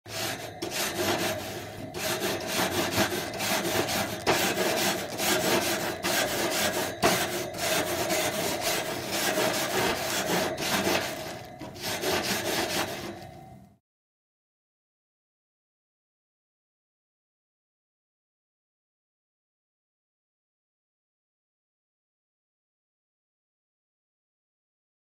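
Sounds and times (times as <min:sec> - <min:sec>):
grill grate being scrubbed: 0:00.1 - 0:13.4.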